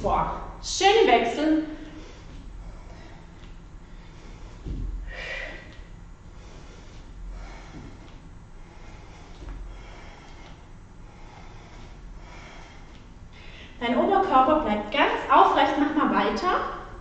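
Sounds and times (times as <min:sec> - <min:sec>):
woman breathing hard: 0:01.4 - 0:13.8
bare feet thudding: 0:02.1 - 0:10.7.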